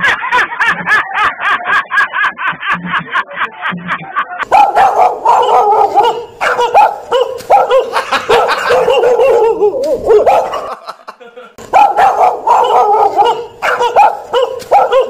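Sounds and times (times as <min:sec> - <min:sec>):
dog yapping: 0:04.5 - 0:10.8, 0:11.7 - 0:15.0.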